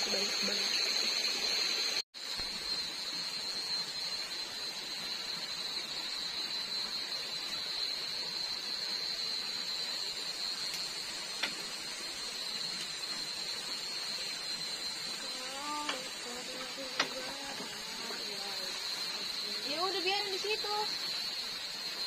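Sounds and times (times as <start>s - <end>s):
flowing stream water: 0.0s - 2.0s
high-pitched insect chorus: 0.0s - 22.0s.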